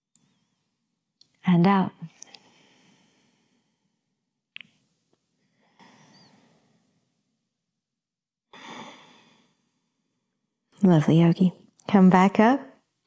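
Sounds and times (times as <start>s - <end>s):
woman breathing softly: 2.1s - 4.2s, 5.4s - 7.3s, 8.5s - 10.4s
mouth click: 4.5s - 4.8s.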